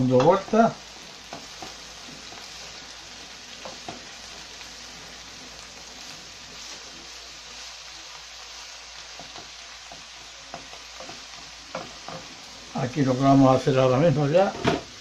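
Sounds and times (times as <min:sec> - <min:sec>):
vegetables sizzling in a frying pan: 0:00.0 - 0:15.0
wooden spoon knocking a pan: 0:09.1 - 0:12.4.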